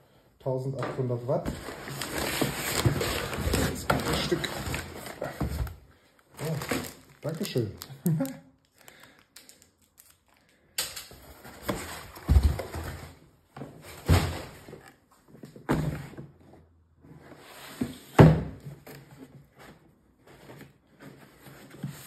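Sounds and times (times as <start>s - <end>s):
cardboard rustling and scraping: 0.9s - 5.8s, 11.2s - 22.0s.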